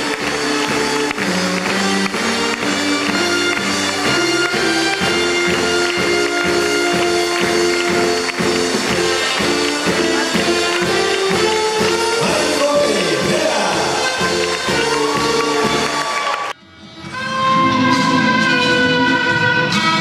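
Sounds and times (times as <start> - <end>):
music with quick beat: 0.0 - 16.5.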